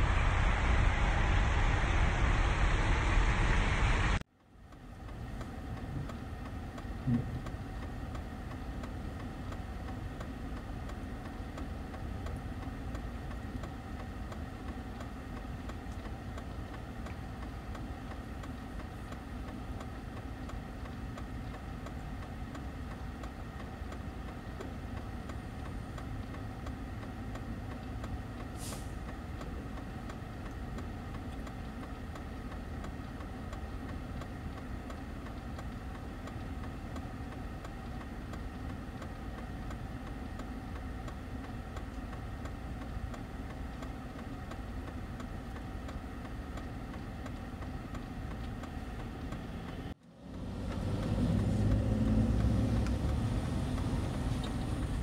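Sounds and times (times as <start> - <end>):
brief low sound: 0.0 - 4.2
car engine hum: 0.0 - 55.0
faint click: 24.6 - 29.5.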